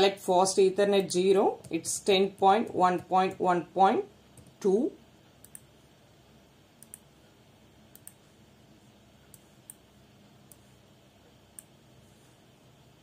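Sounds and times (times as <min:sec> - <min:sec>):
computer mouse clicks: 0:04.4 - 0:04.6, 0:05.4 - 0:05.7, 0:06.8 - 0:07.1, 0:07.9 - 0:08.2, 0:09.3 - 0:10.7.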